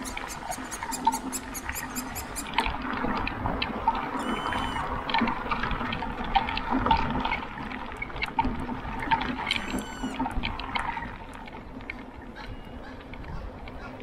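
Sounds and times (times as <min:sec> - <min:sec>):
high bird call: 0:00.0 - 0:02.5, 0:04.2 - 0:04.9, 0:09.6 - 0:10.2
wind rumbling on microphone: 0:00.0 - 0:14.0.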